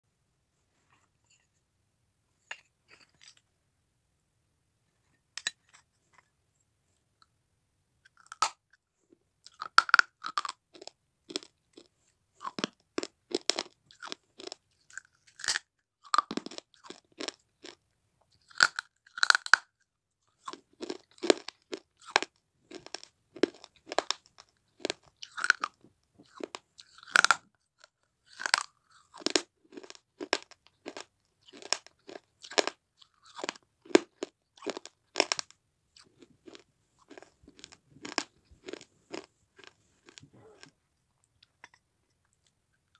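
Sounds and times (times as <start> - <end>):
person chewing dry crunches: 8.1 - 8.8, 9.4 - 17.8, 18.4 - 42.9.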